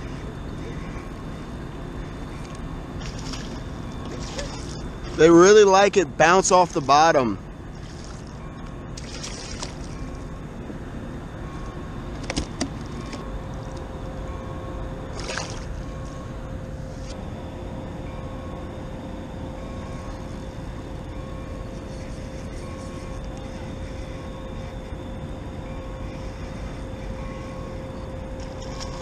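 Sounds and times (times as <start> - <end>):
low rumble of machinery: 0.0 - 29.0
thin steady hum: 0.0 - 29.0
fish splashing: 9.0 - 9.9.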